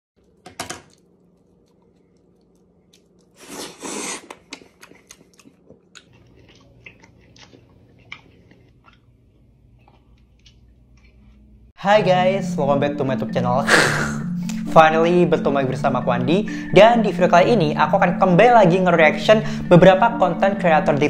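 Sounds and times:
man biting banana: 0.2 - 9.1
wet chewing and smacks: 0.2 - 11.4.

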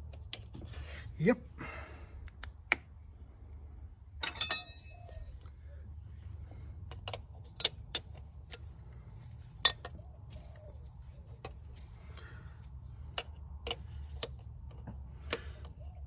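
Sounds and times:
spanner clinking on metal nuts: 4.2 - 5.3, 6.8 - 8.8, 9.5 - 10.0.

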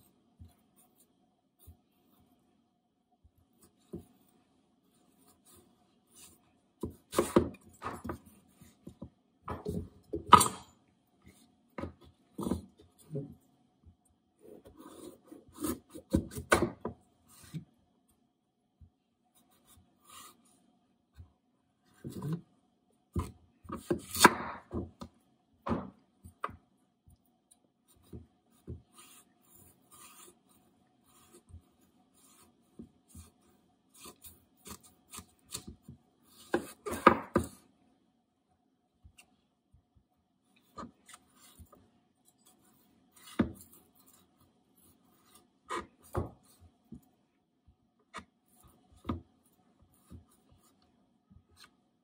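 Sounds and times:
knife cutting through squash: 14.4 - 16.5, 28.9 - 31.6, 33.1 - 37.5, 42.4 - 46.5.

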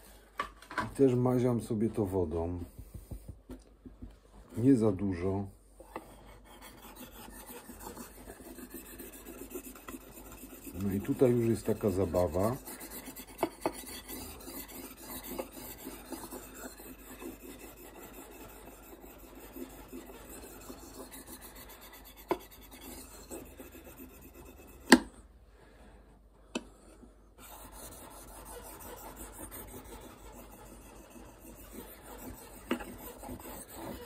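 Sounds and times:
knife scraping on whetstone: 6.0 - 25.0, 27.4 - 34.0.

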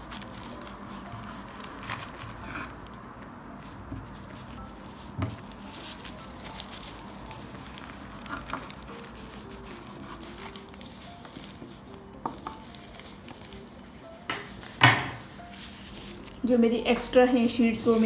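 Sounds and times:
faint background music: 0.0 - 18.0
pastry sheets rustling: 0.0 - 18.0.

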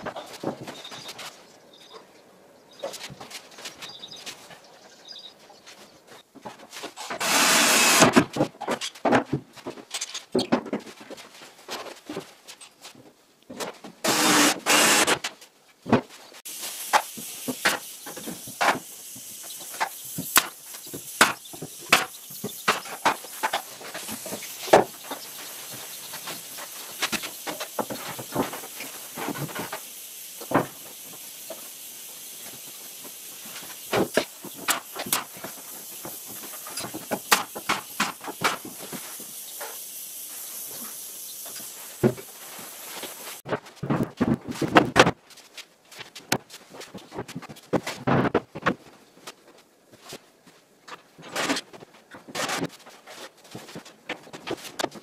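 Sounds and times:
cordless drill running: 7.2 - 8.2, 14.0 - 15.2
steady hiss: 16.3 - 43.4
sharp clicks and knocks: 33.5 - 39.8.

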